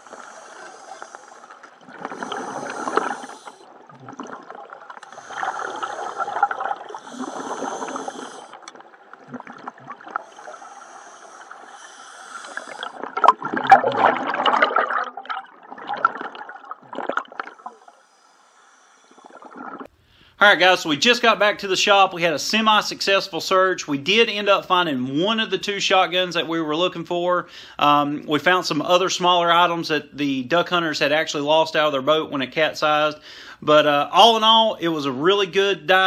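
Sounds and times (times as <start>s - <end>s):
regulator hissing inhale: 0.0s - 3.7s, 5.0s - 8.7s, 10.0s - 13.1s, 17.6s - 20.4s, 27.5s - 27.8s, 33.2s - 33.6s
exhaled bubbles rushing: 0.0s - 18.0s, 19.2s - 19.9s.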